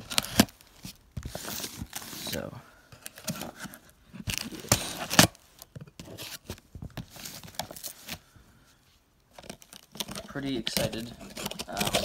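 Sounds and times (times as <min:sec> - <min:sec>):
cardboard tearing: 0:00.0 - 0:02.5, 0:03.1 - 0:05.4, 0:09.4 - 0:12.0
loud cardboard rips: 0:04.2 - 0:05.4, 0:10.7 - 0:12.0.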